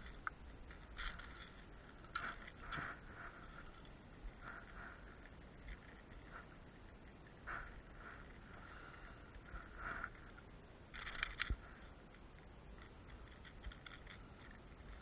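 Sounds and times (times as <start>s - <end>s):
small metallic clicks: 0.0s - 4.6s, 8.7s - 15.0s
soft rustling and scraping: 0.0s - 15.0s.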